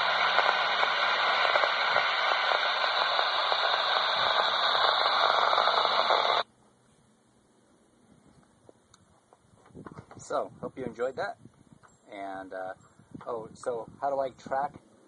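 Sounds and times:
radio static hiss: 0.0s - 6.5s, 12.1s - 14.8s.

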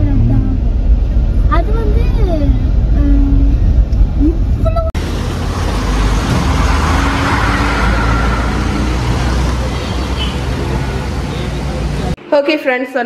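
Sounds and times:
road vehicle rumble and hiss: 0.0s - 12.2s.

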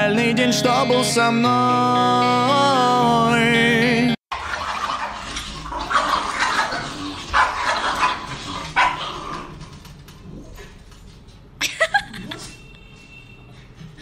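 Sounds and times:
dog barking: 7.4s - 9.2s.

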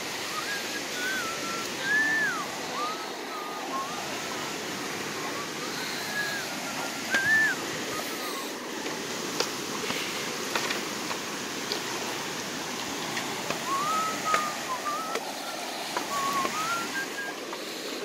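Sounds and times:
creek rushing: 0.0s - 18.0s
water swirling around a pole: 0.0s - 18.0s.

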